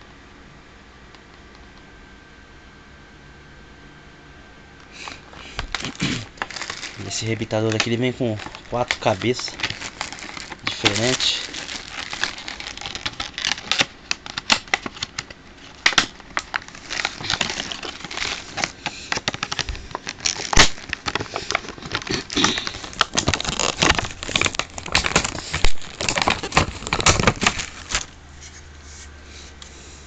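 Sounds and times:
plastic packaging crinkling: 4.9s - 28.5s.

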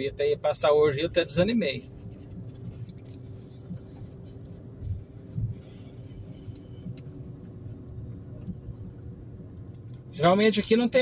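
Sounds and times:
car engine and road rumble: 0.0s - 11.0s
faint steady hum: 0.0s - 11.0s
soft low thumps: 3.5s - 9.6s.

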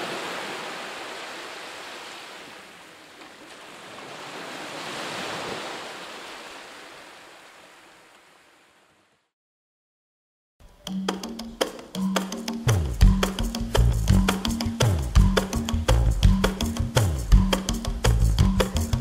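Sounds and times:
ocean waves washing in: 0.0s - 9.2s.

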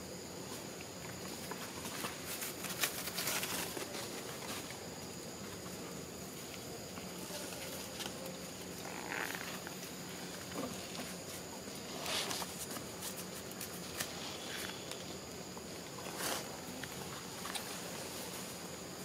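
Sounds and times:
high insect hum: 0.0s - 19.0s.

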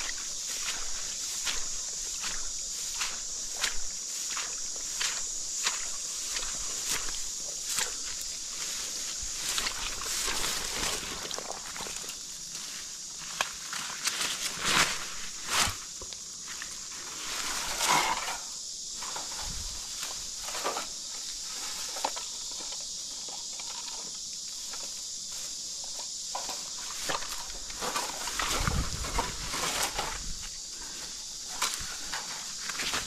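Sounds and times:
footsteps in undergrowth: 0.0s - 18.0s, 24.0s - 33.0s
steady high hiss: 0.0s - 33.0s.

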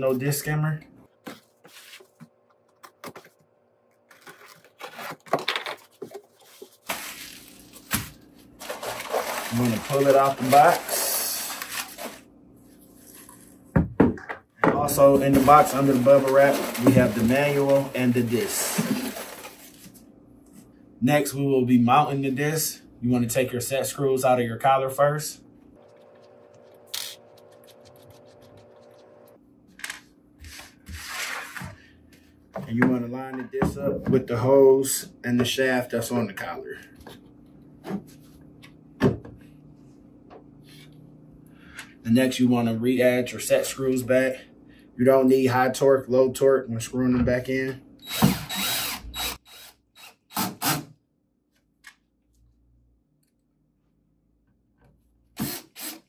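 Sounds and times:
faint steady hum: 0.0s - 50.1s.

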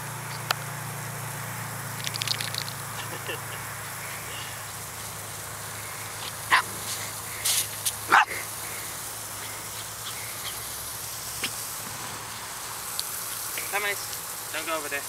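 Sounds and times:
sprinklers hissing: 0.0s - 15.0s
small dog barking: 6.5s - 6.8s, 8.1s - 8.5s.

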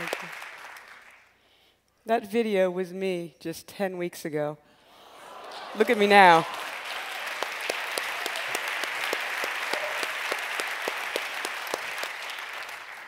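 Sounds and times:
audience applauding: 0.0s - 1.3s, 5.4s - 13.0s.

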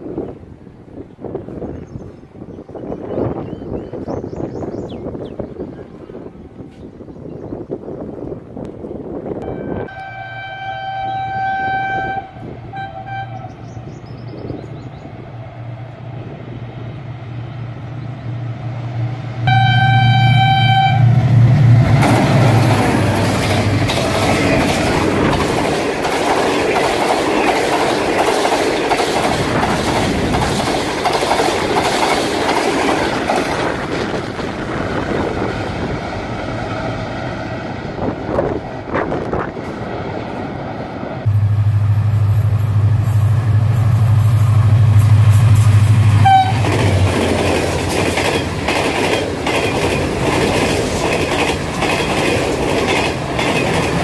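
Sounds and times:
train horn blasts: 9.4s - 13.7s, 19.4s - 21.4s, 41.3s - 46.8s
diesel locomotive engine running: 12.2s - 54.0s
train wheels clattering over rail joints: 21.9s - 34.7s, 46.6s - 54.0s.

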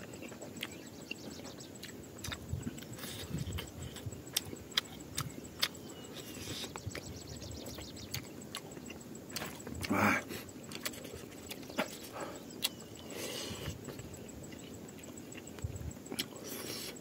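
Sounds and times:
open-mouthed chewing: 0.0s - 17.0s
wet lip-smacking clicks: 12.5s - 12.8s, 13.9s - 16.4s.

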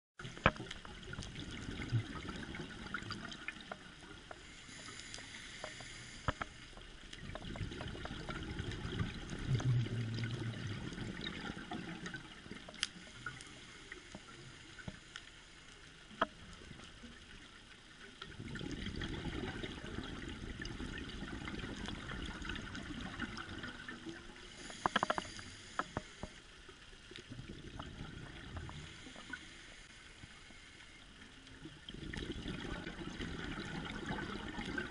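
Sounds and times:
regulator bubbles underwater: 0.2s - 15.1s, 15.8s - 34.9s
steady hiss: 4.0s - 7.2s, 12.5s - 18.2s, 24.2s - 27.3s, 28.3s - 31.7s.

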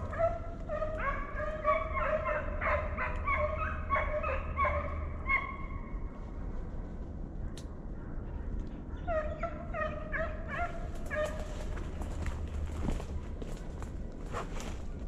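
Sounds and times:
hounds baying: 0.0s - 5.7s, 9.0s - 12.4s.

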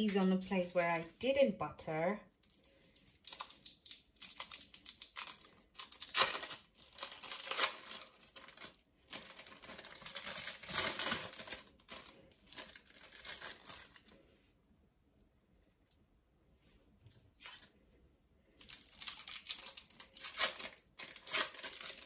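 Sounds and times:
plastic packaging crinkling: 2.4s - 14.2s, 18.5s - 22.0s.

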